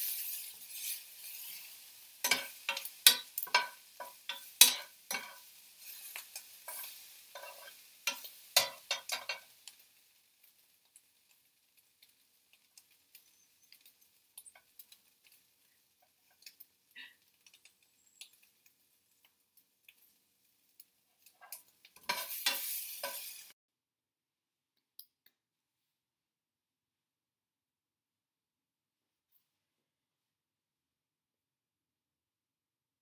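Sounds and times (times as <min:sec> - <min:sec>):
crackles and pops: 0:00.0 - 0:23.6
vegetables sizzling in a frying pan: 0:00.0 - 0:23.6.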